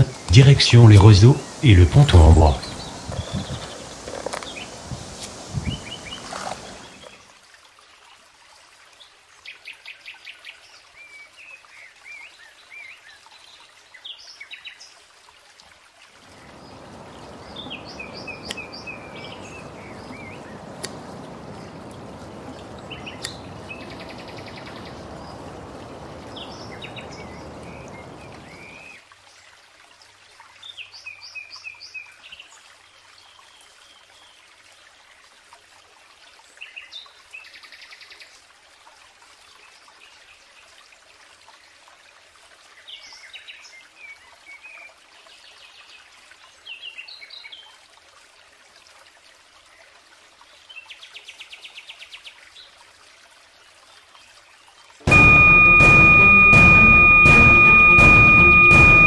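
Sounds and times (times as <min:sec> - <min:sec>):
small birds chirping and singing: 0:01.2 - 0:07.1, 0:16.5 - 0:21.8, 0:22.7 - 0:28.9
sharp knocks: 0:55.1 - 0:59.0.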